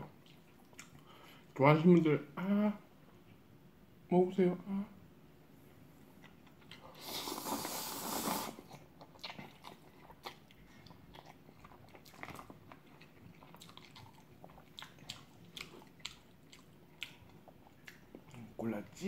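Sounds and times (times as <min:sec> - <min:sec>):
wet chewing smacks: 0:00.0 - 0:01.2, 0:06.2 - 0:19.0
person slurping noodles: 0:06.9 - 0:08.8.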